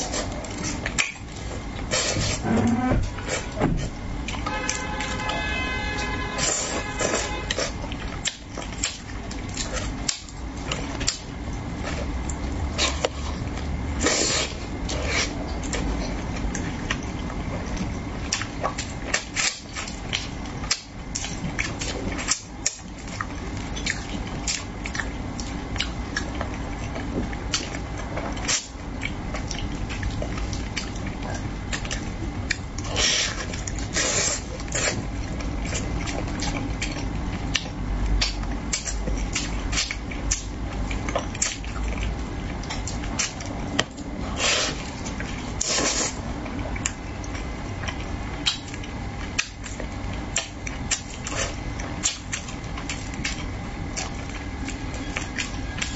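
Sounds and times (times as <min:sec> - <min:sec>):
low hum: 0:00.0 - 0:55.9
wet chewing and lip smacks: 0:07.5 - 0:13.2, 0:14.4 - 0:55.9
slurping: 0:32.9 - 0:35.0, 0:45.6 - 0:46.2.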